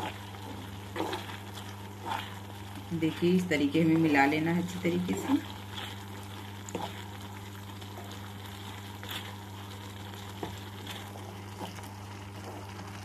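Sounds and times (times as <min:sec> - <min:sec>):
spatula scraping a pan: 0:00.0 - 0:03.2, 0:05.1 - 0:13.0
low hum and hiss: 0:00.0 - 0:13.0.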